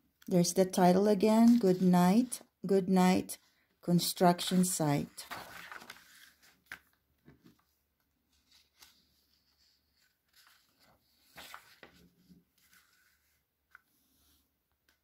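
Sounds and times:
book pages rustling: 1.3s - 2.4s, 4.5s - 15.0s.

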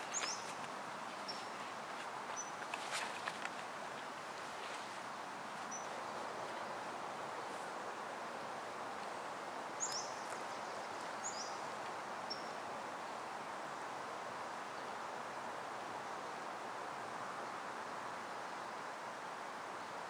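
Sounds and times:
birds chirping: 0.0s - 4.1s, 5.6s - 6.8s, 9.1s - 12.6s.

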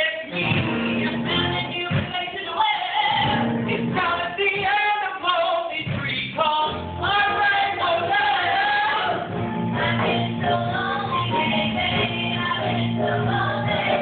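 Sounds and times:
steady bass line: 0.4s - 1.9s, 3.2s - 4.3s, 6.7s - 14.0s
voices singing: 6.5s - 14.0s.

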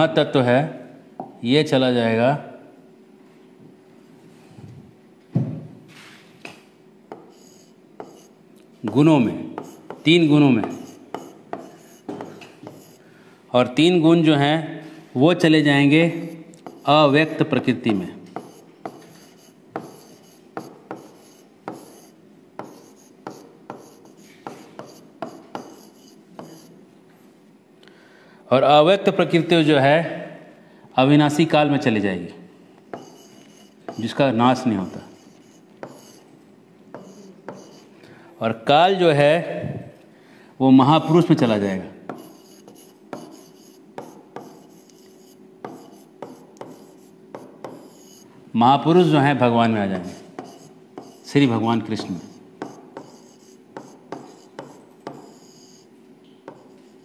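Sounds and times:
stylus scraping on glass: 7.2s - 8.4s, 33.0s - 34.1s, 34.8s - 36.3s, 37.0s - 37.9s, 42.2s - 48.2s, 52.2s - 55.9s.

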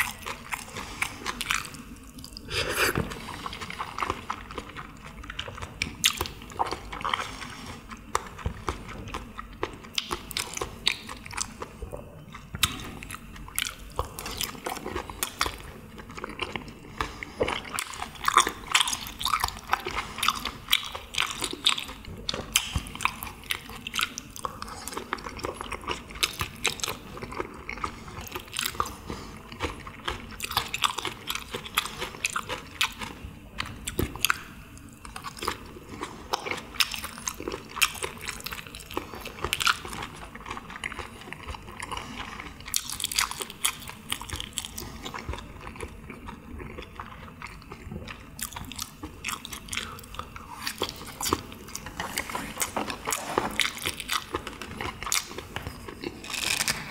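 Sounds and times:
close chewing of meat: 0.0s - 56.9s.

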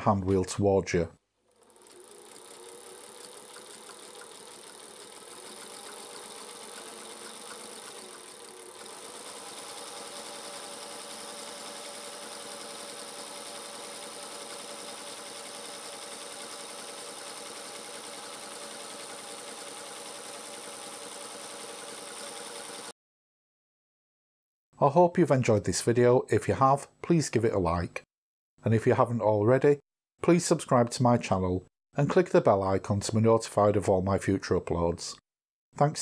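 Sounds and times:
sewing machine running: 1.5s - 22.9s.

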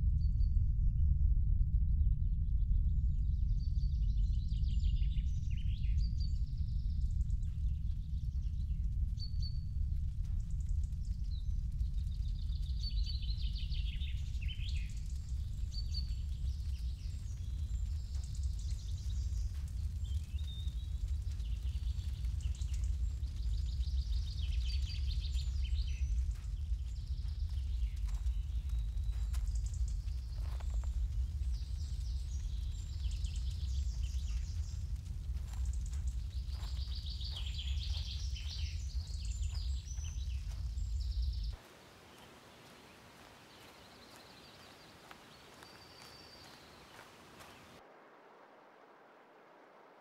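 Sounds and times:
low rumble: 0.0s - 41.6s
birds chirping and singing: 12.2s - 47.8s.

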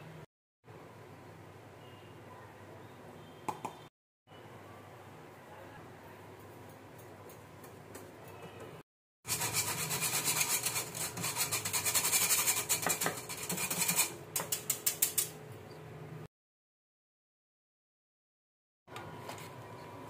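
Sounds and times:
whisk scraping metal sieve: 9.3s - 15.4s.

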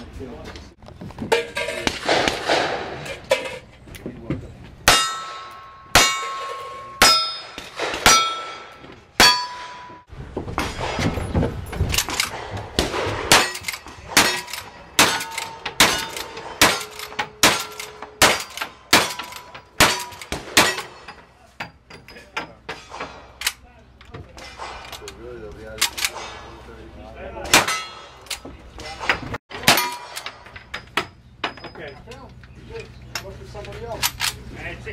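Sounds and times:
rifle shots: 2.0s - 3.0s, 12.0s - 21.0s
steel target ringing: 4.8s - 10.1s, 29.6s - 30.9s.

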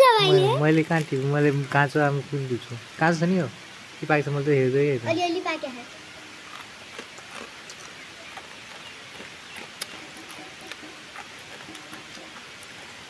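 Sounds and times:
steady hiss: 0.0s - 13.0s
small clicks and ticks: 6.4s - 13.0s.

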